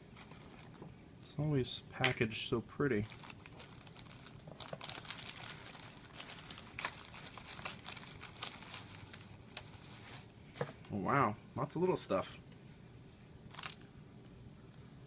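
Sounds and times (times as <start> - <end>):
tissue paper rustling: 3.0 - 10.7, 13.5 - 13.8.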